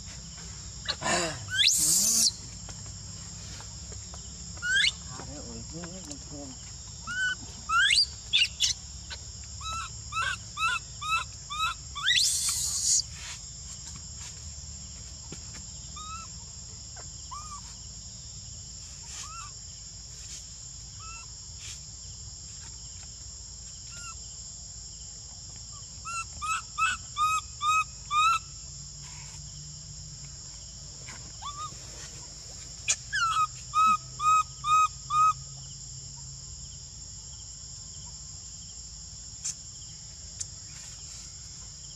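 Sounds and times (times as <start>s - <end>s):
high-pitched insect drone: 0.0s - 2.6s, 4.6s - 14.4s
rising whistles: 1.5s - 2.4s, 11.6s - 13.1s.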